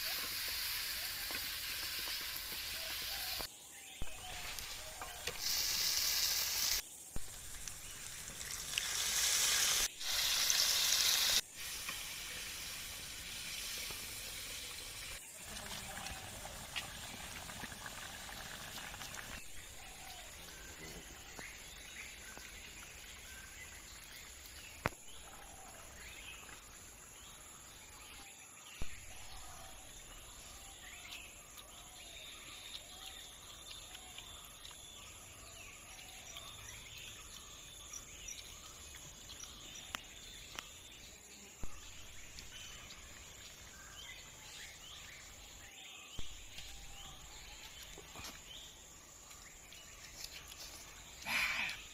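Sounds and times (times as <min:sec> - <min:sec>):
curry boiling in a wok: 0:00.0 - 0:03.5, 0:04.1 - 0:26.6.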